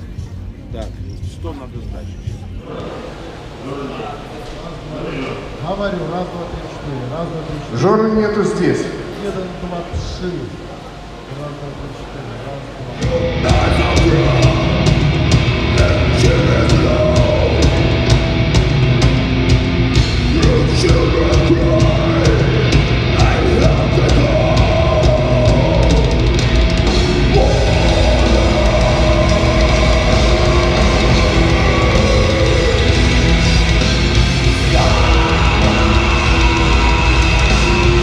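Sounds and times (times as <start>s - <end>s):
sharp regular hits: 12.9s - 38.0s
black metal band playing live: 13.0s - 38.0s.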